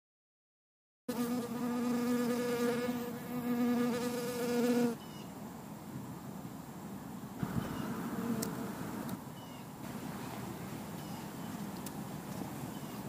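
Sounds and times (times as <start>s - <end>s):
honeybee buzzing in flight: 1.1s - 5.0s, 7.4s - 9.2s.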